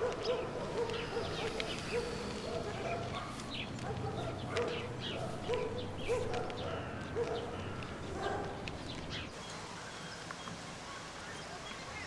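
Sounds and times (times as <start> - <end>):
dog barking: 0.0 - 8.6
birds chirping: 0.0 - 12.0
outdoor background noise: 0.0 - 12.0.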